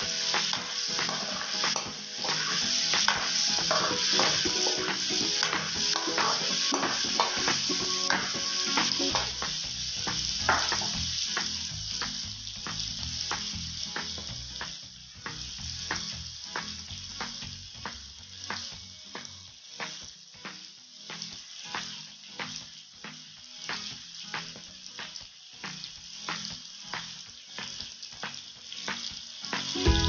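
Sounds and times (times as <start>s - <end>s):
oil crackling pops: 0.0s - 14.4s
food sizzling in a wok: 0.0s - 30.0s.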